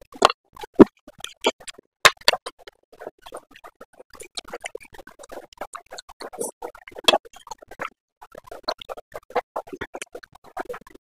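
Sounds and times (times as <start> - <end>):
chewing noodles: 0.1 - 10.9.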